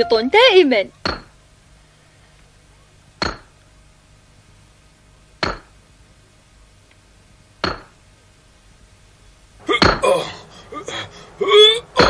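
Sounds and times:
hammer striking anvil: 0:01.0 - 0:01.3, 0:03.2 - 0:03.5, 0:05.4 - 0:05.7, 0:07.6 - 0:08.0.

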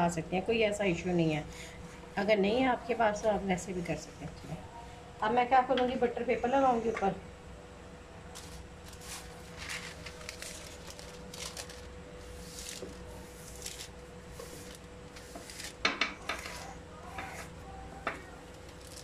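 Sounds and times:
baking paper rustling: 0:08.3 - 0:17.6, 0:18.6 - 0:19.0.

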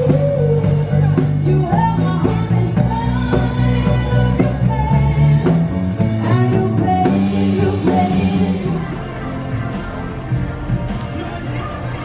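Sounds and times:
woman singing: 0:00.0 - 0:09.6
drums: 0:00.0 - 0:12.0
electric bass: 0:00.0 - 0:12.0
keyboard: 0:00.0 - 0:12.0.

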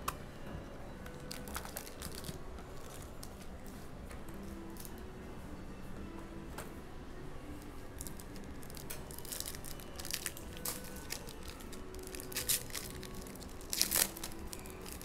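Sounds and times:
foil wrapper tearing and crinkling: 0:01.2 - 0:03.1, 0:08.0 - 0:15.0.

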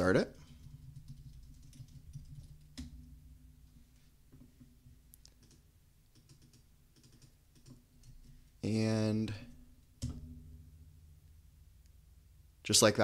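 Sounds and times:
keyboard typing: 0:00.4 - 0:02.9, 0:05.2 - 0:08.4.

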